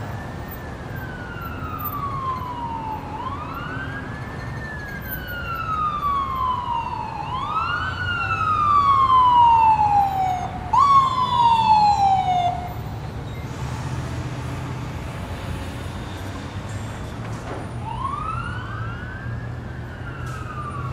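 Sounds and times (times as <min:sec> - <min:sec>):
emergency siren wailing: 0:00.0 - 0:13.0, 0:17.7 - 0:20.9.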